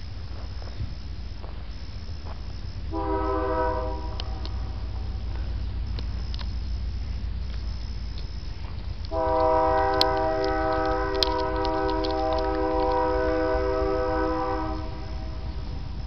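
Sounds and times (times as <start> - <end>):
horn sounding a chord: 2.9 - 5.2, 9.1 - 15.6
sharp cracks: 8.9 - 13.6.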